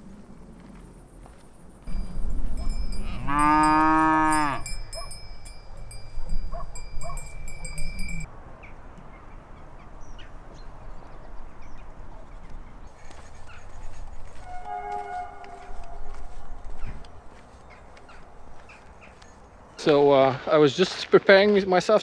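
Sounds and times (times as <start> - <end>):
cow mooing: 2.6 - 5.0.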